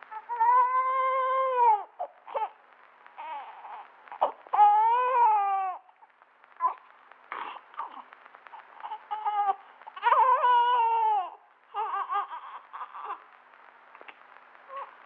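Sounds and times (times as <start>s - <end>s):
baby crying: 0.1s - 2.6s, 3.2s - 6.0s, 8.8s - 13.3s.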